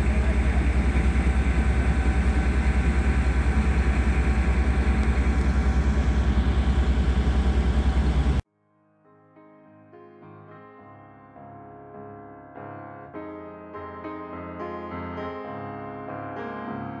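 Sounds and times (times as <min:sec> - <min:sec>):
diesel engine idling: 0:00.0 - 0:08.4.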